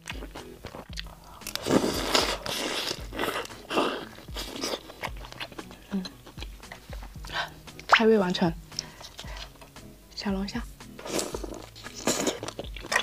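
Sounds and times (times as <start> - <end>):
crunching and chewing prawn: 0.0 - 7.4, 11.0 - 13.0.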